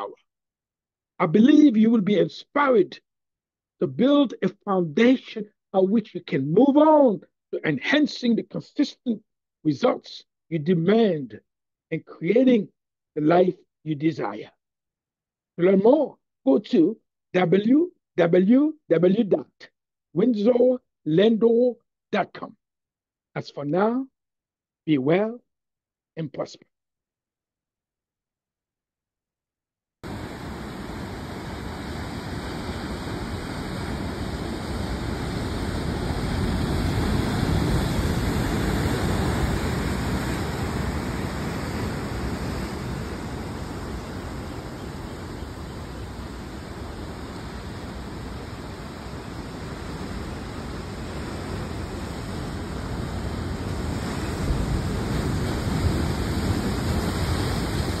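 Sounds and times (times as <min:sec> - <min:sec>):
surf breaking on rocks: 0:30.0 - 0:58.0.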